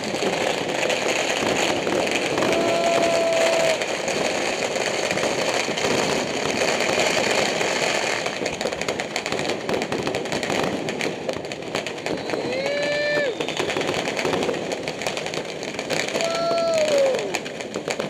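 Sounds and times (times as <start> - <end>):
firecrackers crackling: 0.0 - 18.0
sharp firework cracks: 0.0 - 18.0.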